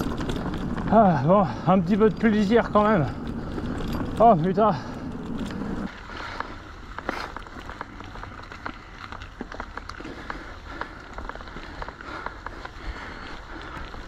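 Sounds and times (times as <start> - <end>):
bike clicks and rattles: 0.0 - 14.0
bike tyre noise on trail: 0.0 - 14.0.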